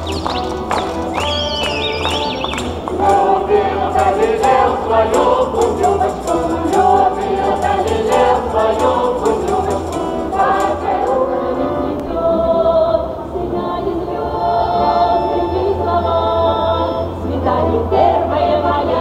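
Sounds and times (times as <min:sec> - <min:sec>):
rhythmic clapping: 0:00.0 - 0:11.3
accordion: 0:00.0 - 0:19.0
men and women singing in chorus: 0:01.2 - 0:19.0.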